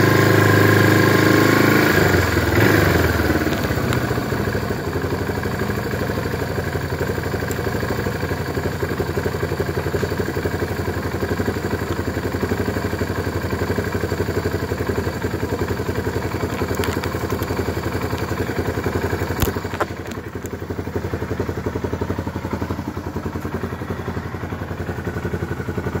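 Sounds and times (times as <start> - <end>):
motorcycle engine idling: 0.0 - 26.0.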